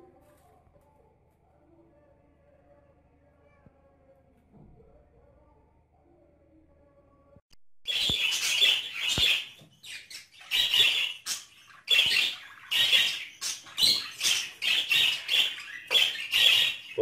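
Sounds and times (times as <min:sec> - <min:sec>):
budgerigars chirping and squawking: 0:07.9 - 0:17.0.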